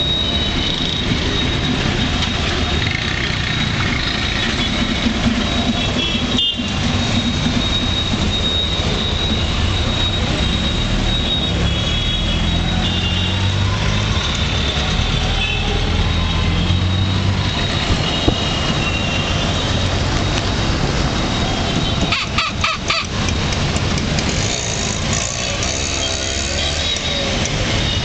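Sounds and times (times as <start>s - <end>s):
auto-rickshaw engine running: 0.0s - 28.0s
city traffic: 0.0s - 28.0s
vehicle horns beeping: 4.4s - 13.8s, 16.5s - 20.0s, 21.2s - 23.3s.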